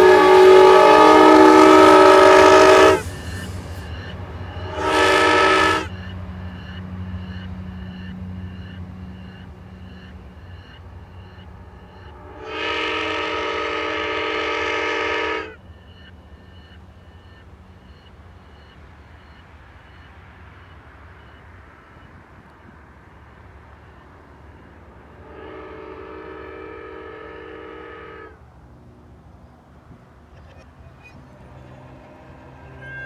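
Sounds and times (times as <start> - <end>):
reversed train air horn blast: 0.0 - 6.0, 12.0 - 15.6, 25.1 - 28.4, 31.0 - 33.0
train rumble: 0.0 - 33.0
crossing bell dinging: 30.4 - 33.0.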